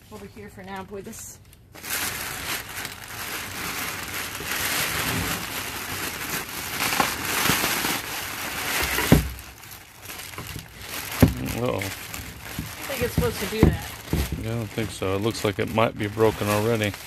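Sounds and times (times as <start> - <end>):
paper crackling and rustling: 1.0 - 17.0
heavy thump: 9.0 - 9.4, 11.2 - 11.6, 12.4 - 14.7.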